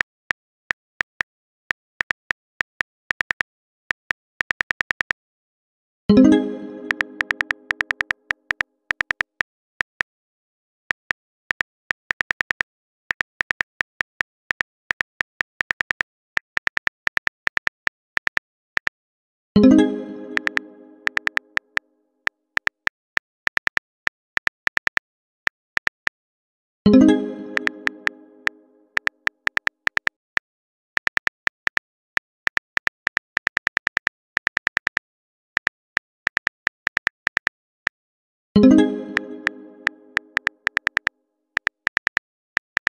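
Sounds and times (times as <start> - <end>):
phone keyboard typing clicks: 6.8 - 9.3, 20.3 - 21.6, 27.5 - 30.1, 39.0 - 42.9.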